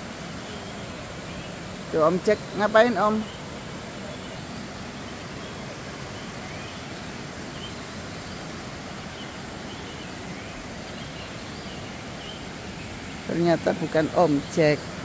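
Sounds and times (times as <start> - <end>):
river water rushing: 0.0 - 15.0
faint bird chirps: 3.2 - 13.0.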